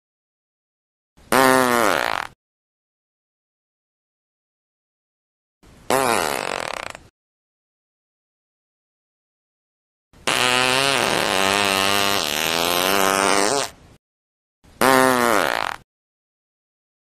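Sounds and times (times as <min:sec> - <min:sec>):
fart sound effect: 0:01.3 - 0:02.4, 0:05.9 - 0:07.1, 0:10.2 - 0:13.8, 0:14.8 - 0:15.9.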